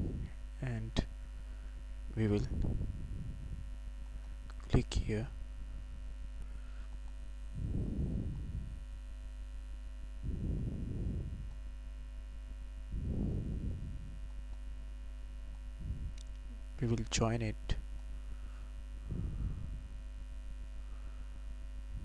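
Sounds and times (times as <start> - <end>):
low electrical hum: 0.0 - 22.0
soft low rushing sounds: 7.5 - 8.8, 10.2 - 11.6, 12.9 - 14.3, 19.0 - 20.0.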